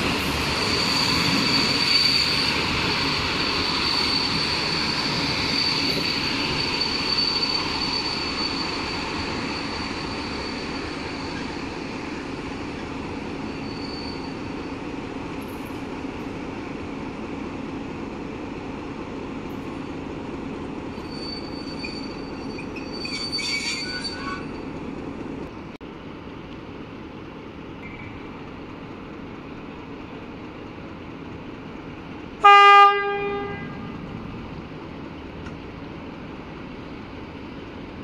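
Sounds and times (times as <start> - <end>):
train rumbling: 0.0 - 38.0
high squeal: 0.3 - 14.7, 20.9 - 24.8
locomotive horn blast: 32.4 - 34.0.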